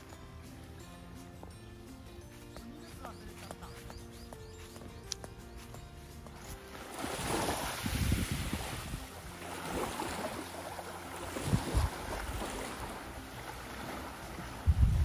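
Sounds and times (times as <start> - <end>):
small waves lapping on shore: 6.2 - 15.0
wind buffeting microphone: 7.0 - 10.1, 11.3 - 13.2, 14.1 - 15.0.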